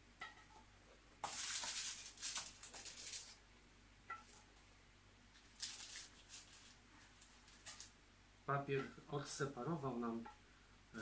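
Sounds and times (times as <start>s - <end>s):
spatula scraping on baking paper: 1.2s - 3.4s.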